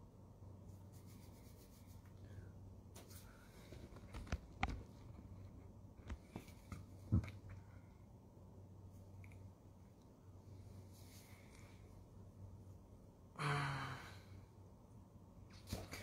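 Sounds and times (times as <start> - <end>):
faint low hum: 0.0 - 16.0
fingers rubbing and tapping phone: 0.8 - 2.2, 3.7 - 6.9.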